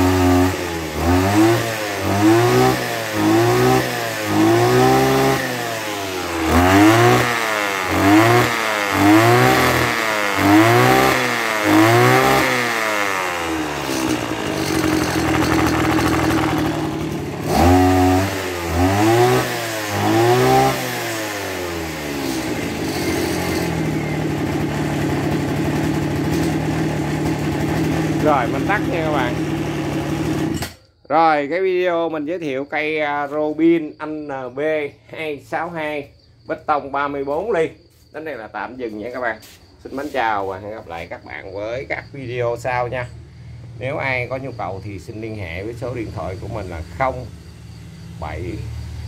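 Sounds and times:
brush cutter engine revving and idling: 0.0 - 30.8.

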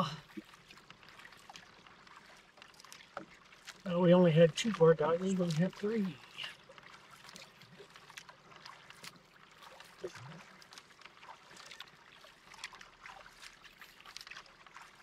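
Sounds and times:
paddle splashes and drips: 0.0 - 15.0
water lapping at hull: 0.0 - 15.0.

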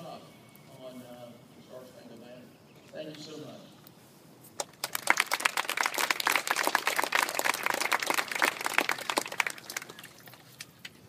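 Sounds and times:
children applauding: 4.6 - 10.4.

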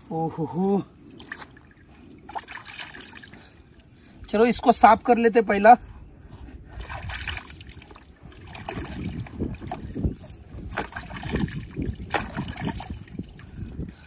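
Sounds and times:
water splashing in plastic tub: 10.7 - 13.1.

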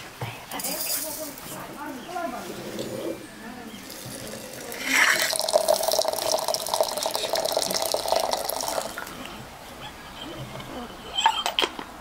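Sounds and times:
water pouring into teapot: 3.8 - 9.1.

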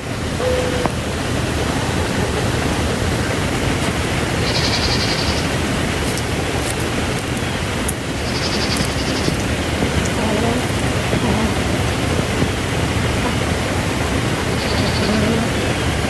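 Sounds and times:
rushing wind: 0.0 - 16.0
bird trilling: 4.4 - 5.5, 8.2 - 11.7, 14.5 - 15.7.

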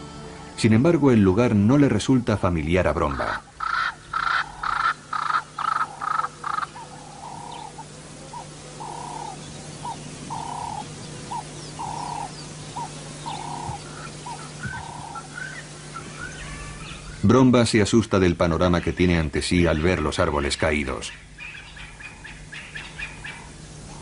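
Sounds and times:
steady low hum: 0.0 - 24.0
wild animal calls: 3.1 - 17.2.

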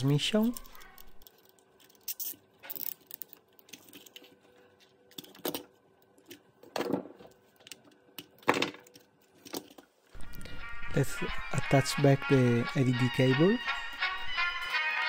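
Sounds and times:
plastic parts clicking and rubbing: 0.3 - 10.0.

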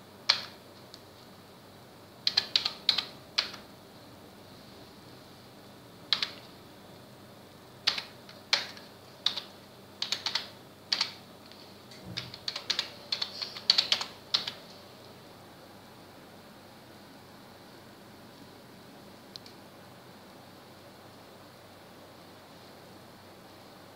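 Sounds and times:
computer keyboard typing: 0.3 - 0.6, 2.2 - 3.7, 6.1 - 6.5, 7.8 - 11.2, 12.0 - 14.6.

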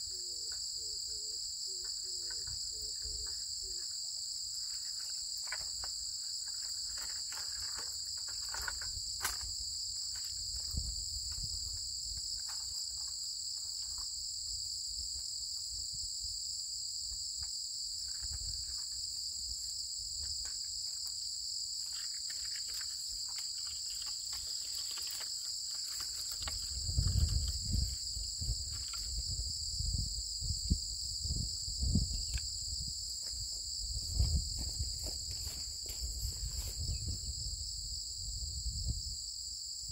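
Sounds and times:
insects shrilling: 21.0 - 29.5.

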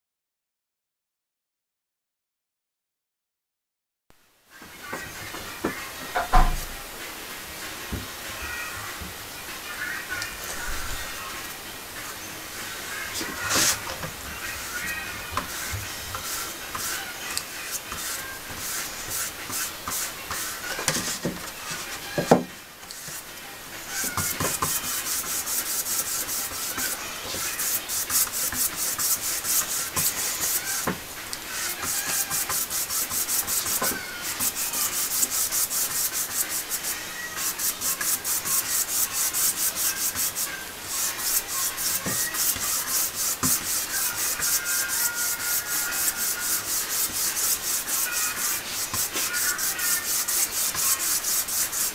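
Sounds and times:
brush scratching on paper: 13.2 - 13.9, 14.6 - 21.9, 24.0 - 30.9, 31.6 - 51.9.

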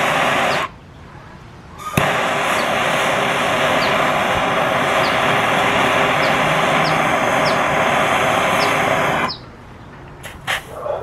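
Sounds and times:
propane torch flame hissing: 0.0 - 0.7, 1.8 - 9.4.

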